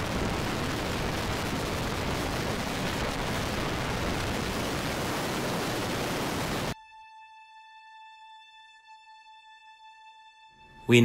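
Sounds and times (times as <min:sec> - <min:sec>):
severe wind rushing: 0:00.0 - 0:06.8.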